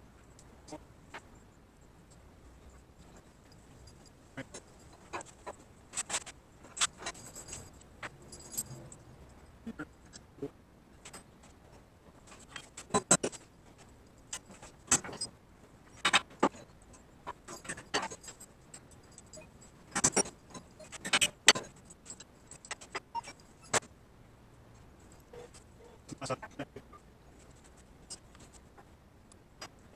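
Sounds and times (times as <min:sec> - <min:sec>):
metal parts clinking on wood: 0:15.9 - 0:23.9.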